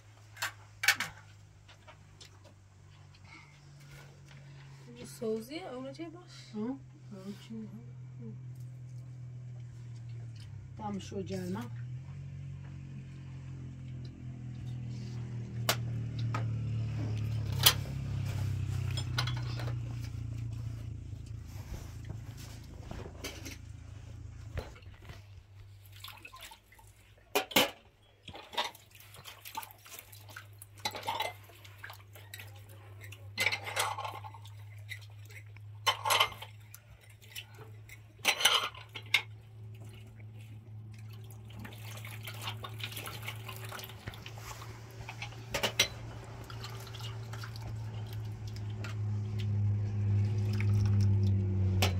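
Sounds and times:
dishes and utensils clinking: 33.0 - 35.0, 35.8 - 36.6, 37.8 - 39.4.

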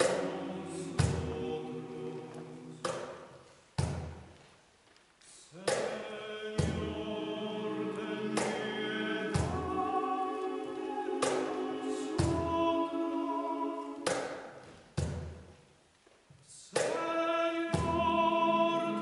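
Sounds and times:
mixed choir singing chords: 0.0 - 3.3, 5.8 - 14.5, 16.9 - 19.0.

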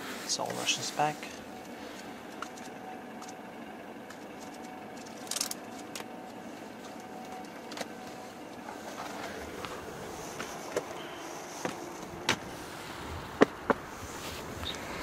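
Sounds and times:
car engine idling hum: 0.0 - 15.0
short rustle: 7.9 - 13.1, 13.8 - 14.9.

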